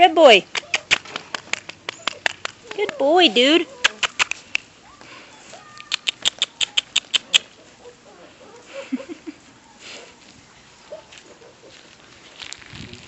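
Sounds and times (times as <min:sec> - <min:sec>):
puppy whimpers: 0:01.9 - 0:04.4
mouth clicks: 0:03.8 - 0:04.7, 0:05.7 - 0:07.5.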